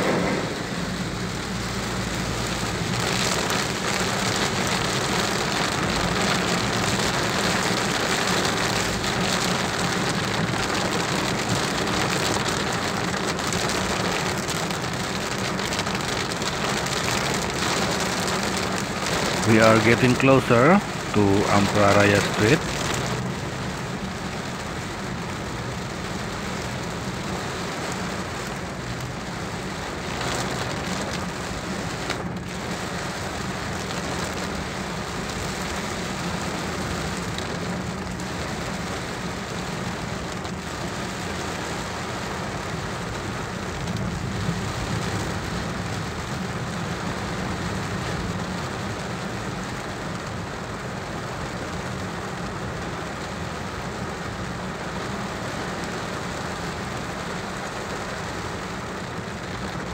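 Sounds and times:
engine and tyres rumbling: 0.0 - 59.9
heavy rain on car roof: 0.0 - 59.9.

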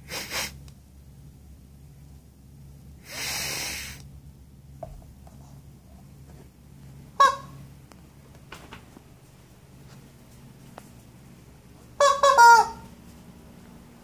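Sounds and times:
rubber chicken air rush: 0.0 - 0.6, 3.0 - 4.1.

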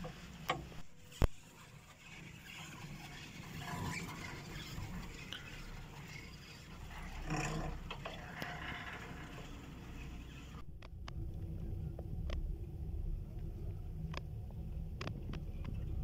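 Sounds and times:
chairlift rumbling: 4.8 - 10.6.

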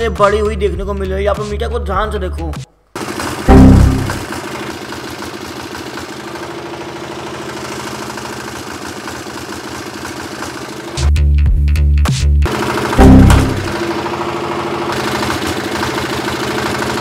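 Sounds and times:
diesel generator engine running: 3.0 - 11.1, 12.5 - 17.0
loud low thudding bursts: 3.5 - 4.3, 13.0 - 13.8.

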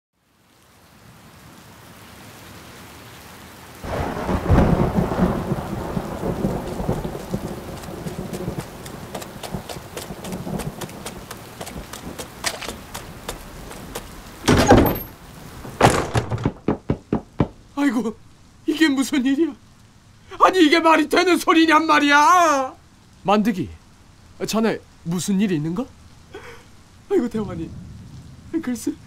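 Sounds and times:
rain hissing: 0.2 - 29.0
thunder rumble: 3.8 - 18.2, 27.0 - 29.0
loud thump: 14.4 - 15.1, 15.8 - 17.6.

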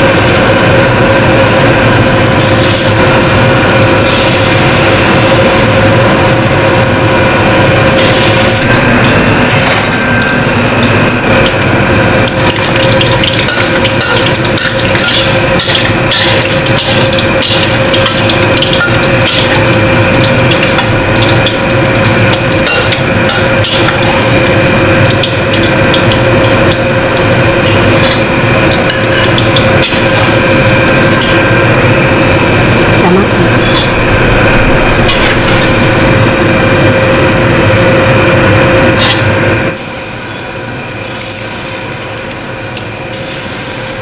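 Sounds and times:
fish frying in hot oil: 0.0 - 44.0
steady hum: 0.0 - 44.0
metal spatula scraping: 13.5 - 19.5.

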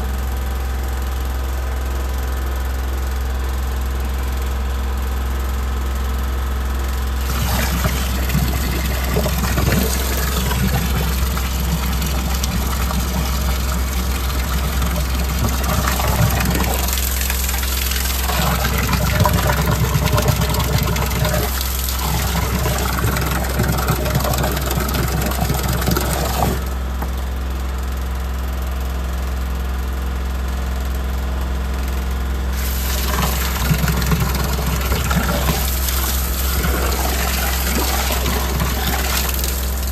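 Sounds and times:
water gushing from a hose: 7.1 - 27.2, 32.6 - 39.9.

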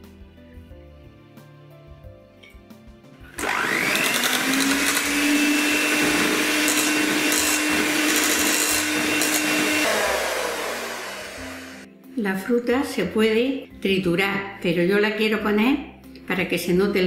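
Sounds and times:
electric hand mixer whipping cream: 3.3 - 11.9.

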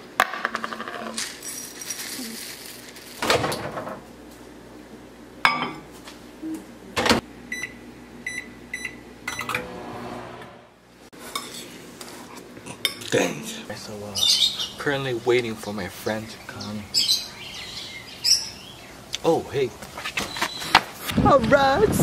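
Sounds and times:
oats rattling into a bowl: 0.6 - 3.2.

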